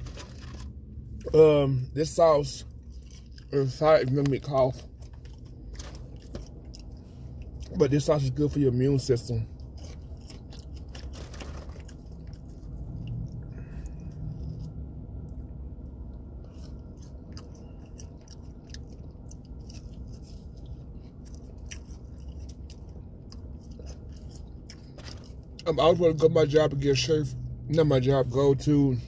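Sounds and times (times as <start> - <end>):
chewing crispy food: 0.0 - 27.0
steady low hum: 0.0 - 29.0.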